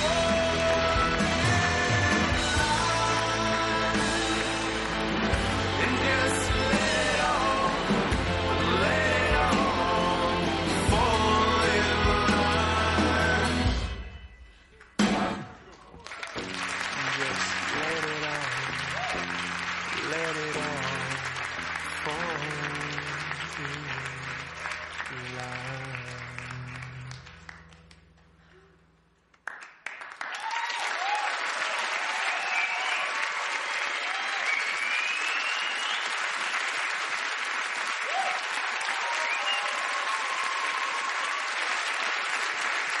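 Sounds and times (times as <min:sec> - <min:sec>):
audience clapping: 0:00.0 - 0:10.4, 0:14.7 - 0:43.0
cheering and whistles: 0:30.2 - 0:36.5, 0:38.0 - 0:41.9.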